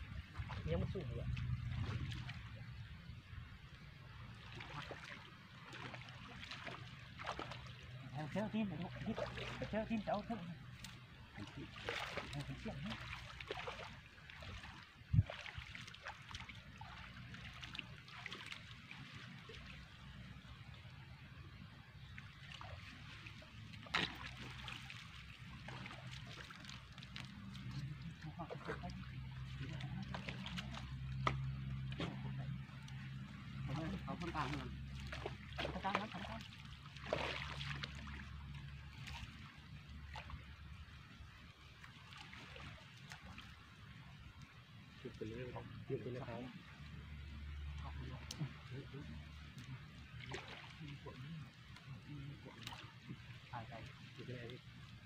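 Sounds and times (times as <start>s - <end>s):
water splashing and trickling: 0.0s - 55.0s
person wading: 4.2s - 20.2s, 22.2s - 44.2s.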